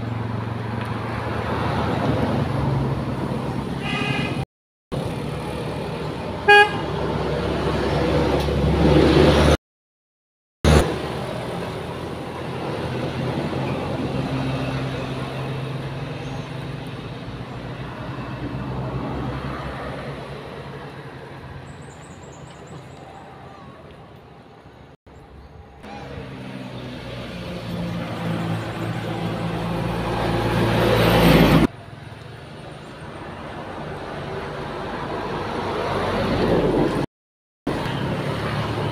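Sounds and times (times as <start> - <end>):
traffic engine noise: 0.0 - 9.6, 10.6 - 37.1, 37.7 - 38.9
car horn toot: 3.8 - 4.4, 6.4 - 6.9.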